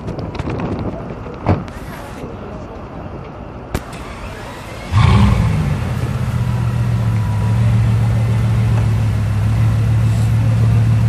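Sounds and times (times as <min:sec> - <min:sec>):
car engine starting and idling: 0:03.8 - 0:11.0.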